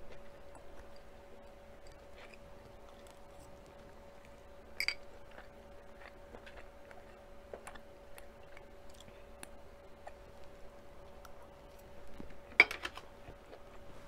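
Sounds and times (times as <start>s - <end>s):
quiet chewing: 0.0s - 14.0s.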